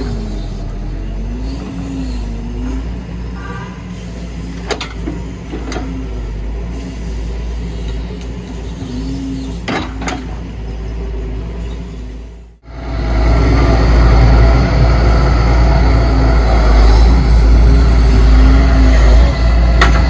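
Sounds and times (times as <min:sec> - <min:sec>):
excavator diesel engine running: 0:00.0 - 0:20.0
low wavering hum: 0:12.6 - 0:20.0.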